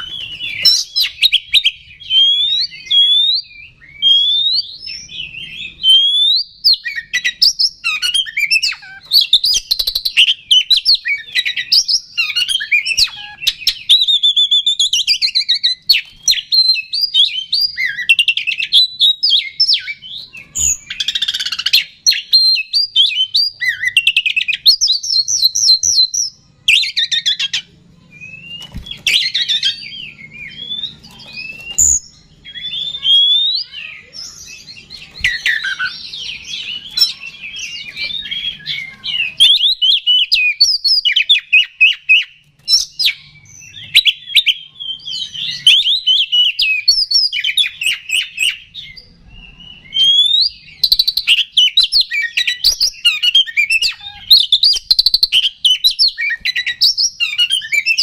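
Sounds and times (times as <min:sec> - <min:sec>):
songbird singing loudly: 0:00.0 - 0:58.0.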